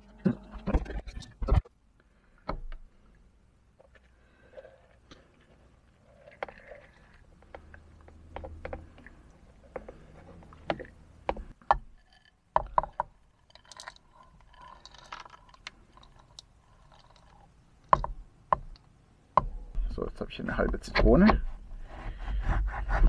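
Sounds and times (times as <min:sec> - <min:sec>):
seeds poured rattling: 0:13.4 - 0:17.5.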